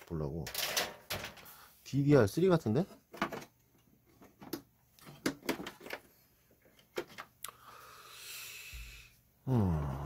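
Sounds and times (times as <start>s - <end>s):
breathy hiss: 7.5s - 10.0s.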